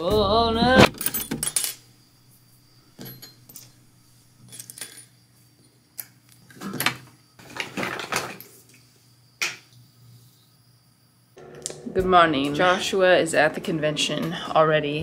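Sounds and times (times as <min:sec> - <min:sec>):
metal rings clinking on stone: 0:03.0 - 0:03.8.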